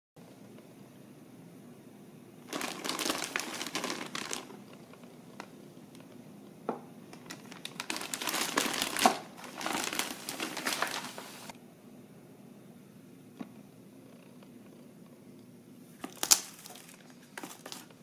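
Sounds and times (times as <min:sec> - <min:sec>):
plastic bag crinkling: 0:02.5 - 0:05.5, 0:07.1 - 0:11.5, 0:16.0 - 0:18.0.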